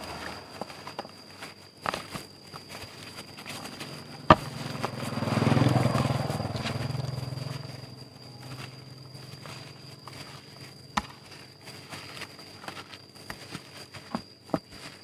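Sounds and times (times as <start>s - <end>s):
passing vehicle engine hum: 0.0s - 1.0s, 3.8s - 10.0s.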